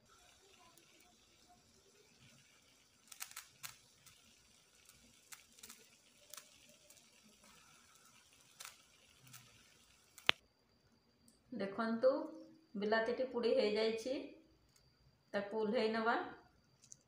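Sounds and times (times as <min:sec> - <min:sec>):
vegetable skins crackling: 0:00.0 - 0:10.4
faint hiss: 0:00.0 - 0:15.4.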